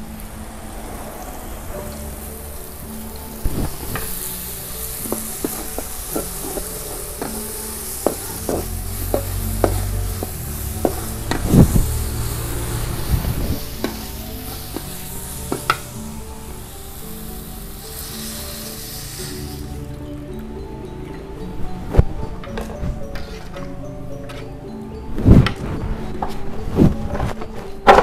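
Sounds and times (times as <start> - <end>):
oil sizzling: 0.0 - 26.4
metal spatula scraping wok: 1.9 - 19.9, 22.5 - 24.7.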